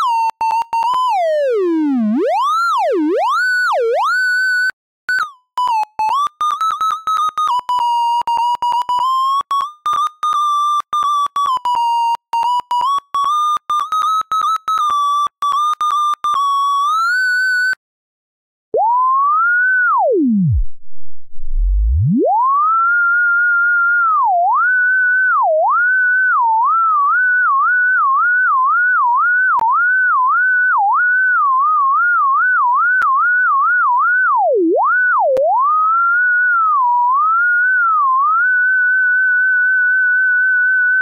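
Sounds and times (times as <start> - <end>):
electronic sine-wave tone: 18.8 - 41.0.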